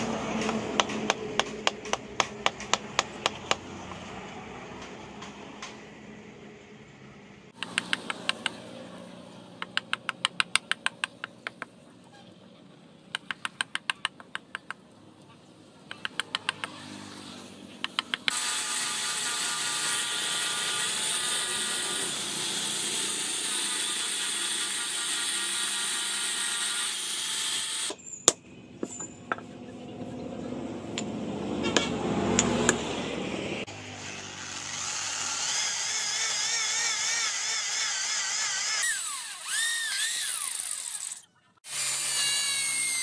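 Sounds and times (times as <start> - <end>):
hatchet chopping wood: 0.3 - 3.7, 7.6 - 8.6, 9.6 - 11.7, 17.8 - 18.4
angle grinder sanding: 33.6 - 43.0.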